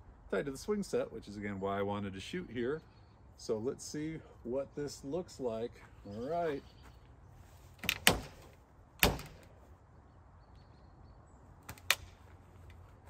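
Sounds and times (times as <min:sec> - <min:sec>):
wooden beam cracking and knocking: 0:07.8 - 0:09.5.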